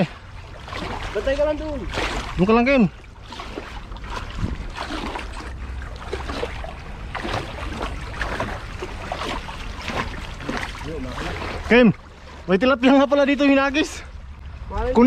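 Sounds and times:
water sloshing and splashing: 0:00.0 - 0:15.0
low rumble: 0:13.6 - 0:15.0.

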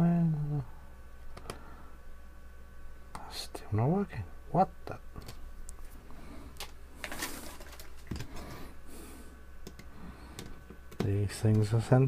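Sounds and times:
hands rustling: 0:05.7 - 0:08.6.

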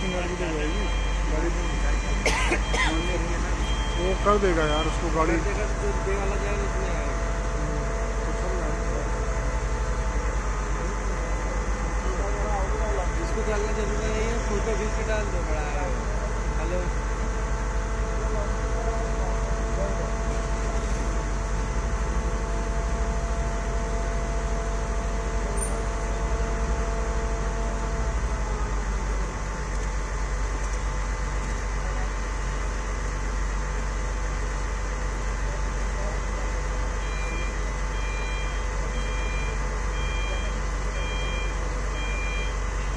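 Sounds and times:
vehicle reversing beeps: 0:00.0 - 0:10.0, 0:36.8 - 0:42.9
heavy machinery engine drone: 0:00.0 - 0:42.9.

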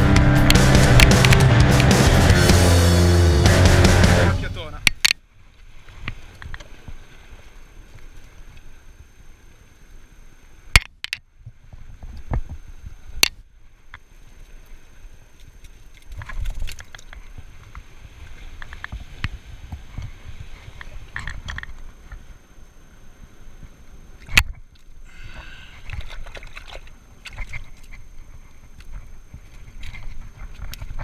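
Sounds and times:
surf rumble: 0:00.0 - 0:15.4, 0:16.1 - 0:31.0
wind on microphone: 0:16.1 - 0:22.2.

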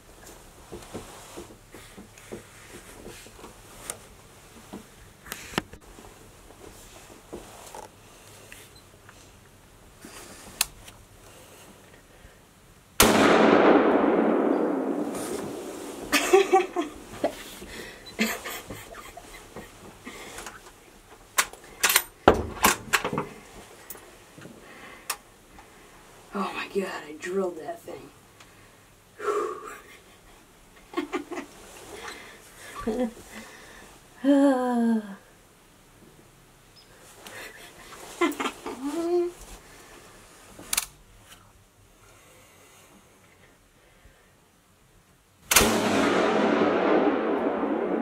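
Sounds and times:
soft taps and rustles: 0:00.2 - 0:09.5.

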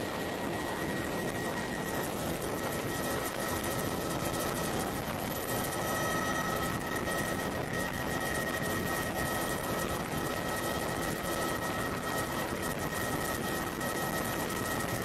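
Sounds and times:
faint high whine: 0:00.0 - 0:15.0
helicopter engine and rotor drone: 0:00.0 - 0:15.0.

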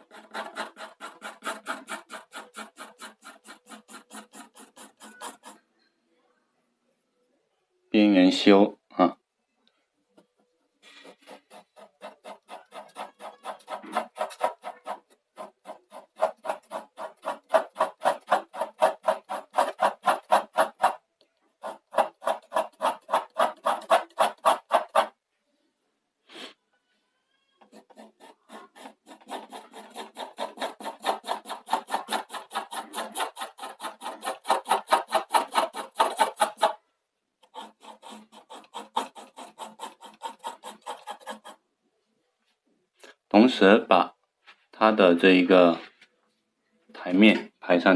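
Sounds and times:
pencil scratching on paper: 0:00.0 - 0:05.7, 0:10.2 - 0:21.0, 0:21.6 - 0:25.2, 0:27.6 - 0:36.8, 0:37.4 - 0:41.6.

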